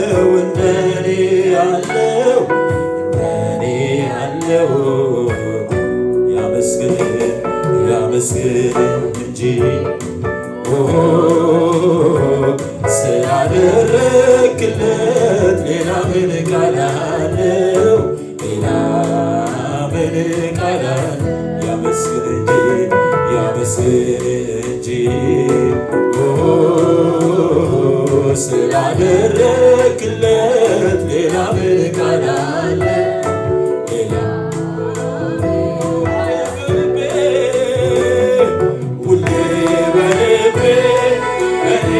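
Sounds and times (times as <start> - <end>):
held instrumental chords: 0.0 - 41.9
man singing: 0.0 - 41.9.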